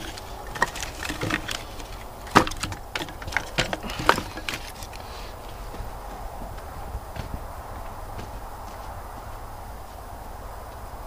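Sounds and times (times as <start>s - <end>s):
wood pieces knocking together: 0.0s - 7.4s.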